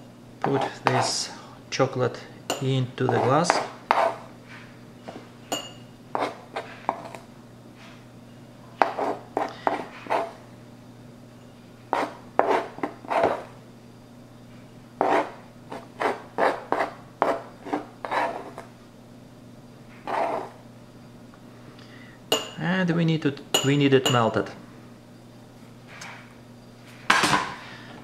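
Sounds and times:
spoon scraping plastic board: 0:06.2 - 0:07.2, 0:11.9 - 0:13.5, 0:15.0 - 0:18.7, 0:20.1 - 0:20.6.

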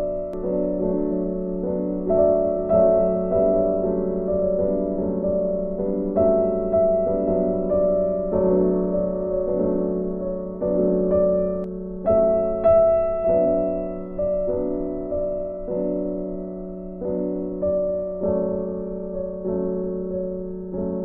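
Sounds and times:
soft piano playing: 0:00.0 - 0:21.0.

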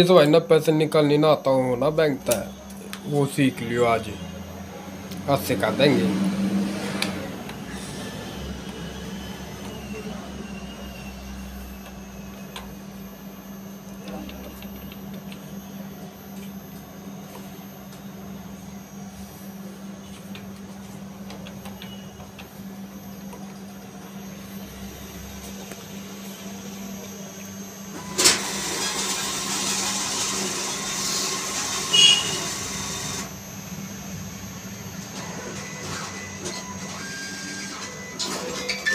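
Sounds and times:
steady hum: 0:00.0 - 0:38.6
cash machine whirring: 0:00.0 - 0:38.9
cash machine mechanism clack: 0:35.2 - 0:38.9.

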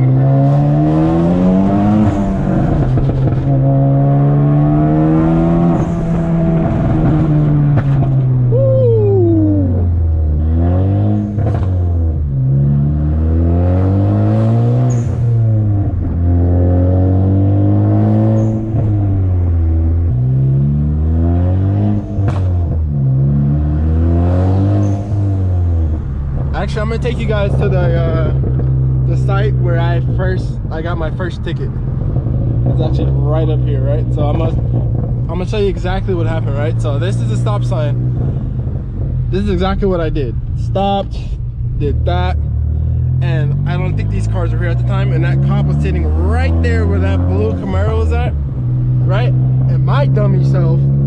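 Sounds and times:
car engine revving through gears: 0:00.0 - 0:08.5, 0:09.5 - 0:51.0
exhaust pops and crackles: 0:02.0 - 0:03.6, 0:05.8 - 0:08.4, 0:22.2 - 0:22.9, 0:25.7 - 0:50.8.

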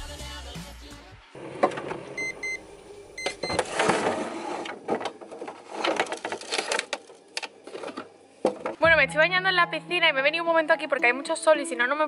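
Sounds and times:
packaging rustling and scraping: 0:03.6 - 0:08.7.

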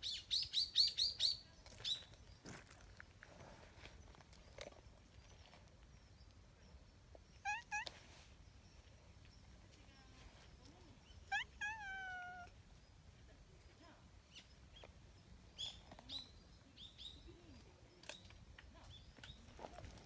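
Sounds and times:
small birds chirping: 0:00.0 - 0:20.0
cat meowing: 0:07.4 - 0:07.9, 0:11.3 - 0:12.5.

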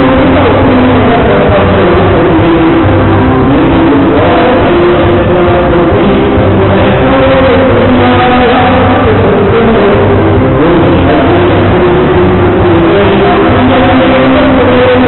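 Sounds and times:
live dance band music: 0:00.0 - 0:15.0.

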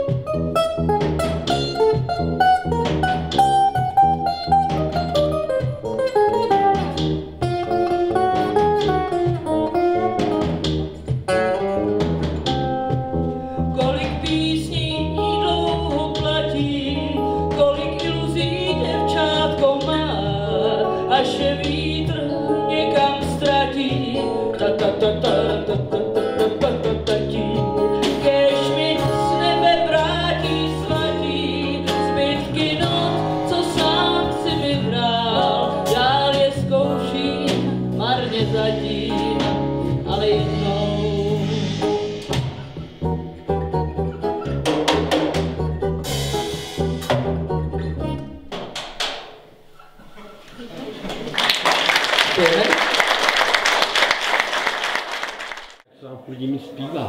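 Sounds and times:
electric bass: 0:00.0 - 0:48.6
woman singing into a microphone: 0:13.7 - 0:41.8
drum kit with cymbals: 0:23.4 - 0:47.6.

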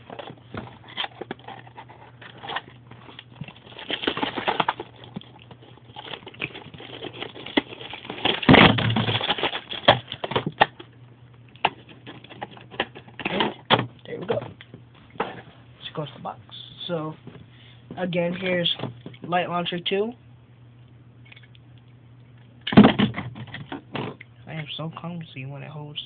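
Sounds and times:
packaging rustling and clicking: 0:00.0 - 0:10.9, 0:11.5 - 0:13.8.

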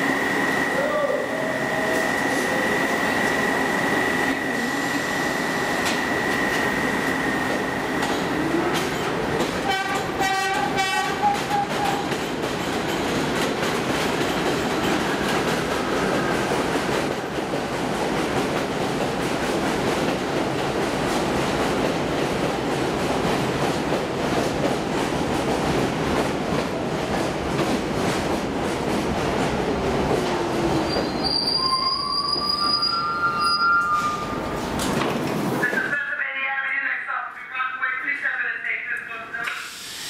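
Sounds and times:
subway train high squeal: 0:00.0 - 0:12.3, 0:30.4 - 0:34.8, 0:39.4 - 0:40.0
train rumble and clatter: 0:01.8 - 0:31.7, 0:32.3 - 0:36.1
train horn blasts: 0:09.6 - 0:12.0.

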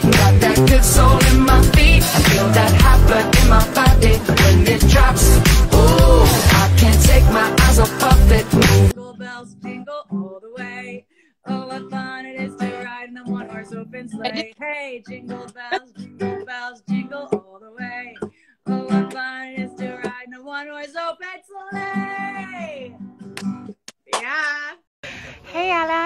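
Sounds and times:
strummed acoustic guitar: 0:00.0 - 0:08.9
woman singing: 0:00.0 - 0:23.0.

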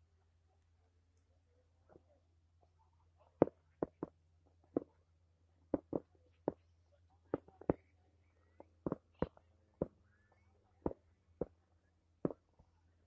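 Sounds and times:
faint low hum: 0:00.0 - 0:13.0.

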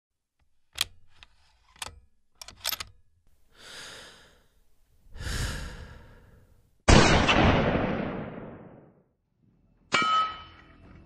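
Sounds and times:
person breathing: 0:03.4 - 0:06.7.

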